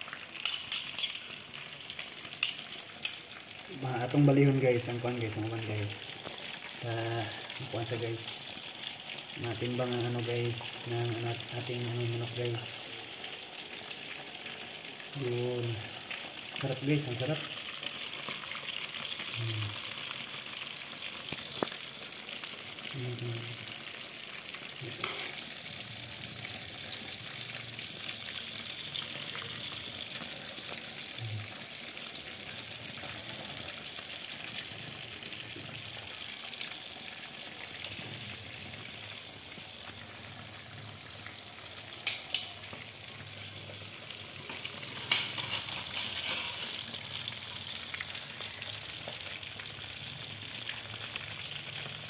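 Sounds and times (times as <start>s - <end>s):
chicken sizzling in hot oil: 0.0s - 52.0s
metal tongs clicking on pan: 0.4s - 1.3s, 2.4s - 3.3s, 25.0s - 25.4s, 37.8s - 38.0s, 42.0s - 42.7s, 44.5s - 46.7s.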